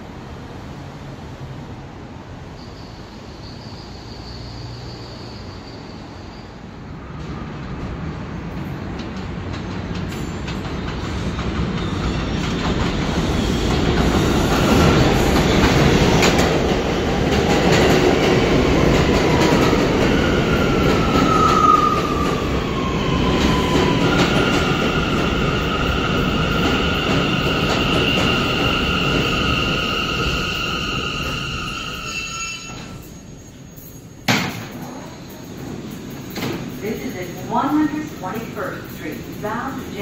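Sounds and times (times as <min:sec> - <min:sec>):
subway train rumbling: 0:00.0 - 0:40.0
high brake squeal: 0:02.5 - 0:06.8, 0:28.0 - 0:35.4
train brakes whining: 0:20.9 - 0:39.9.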